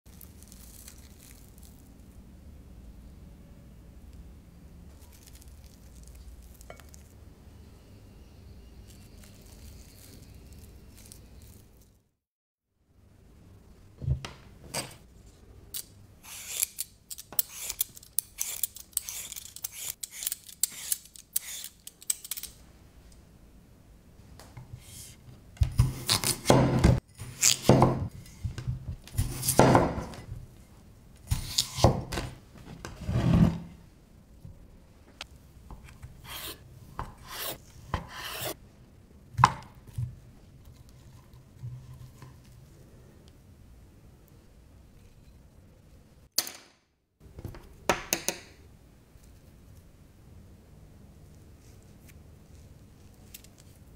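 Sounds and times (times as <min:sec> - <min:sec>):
peeler scraping potato: 0:16.2 - 0:22.4, 0:36.2 - 0:38.6.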